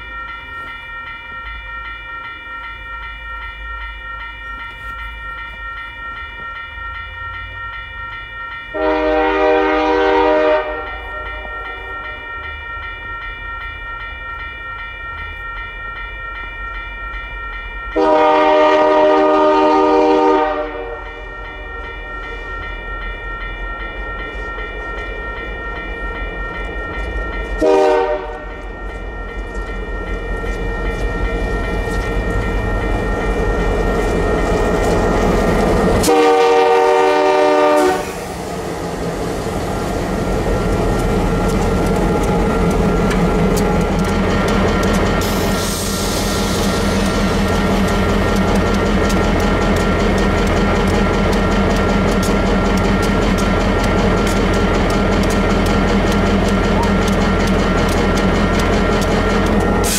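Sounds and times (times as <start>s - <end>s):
low rumble of train: 0.0s - 59.9s
locomotive air horn blasts: 8.8s - 11.3s, 18.0s - 21.0s, 27.6s - 28.4s, 36.0s - 38.2s.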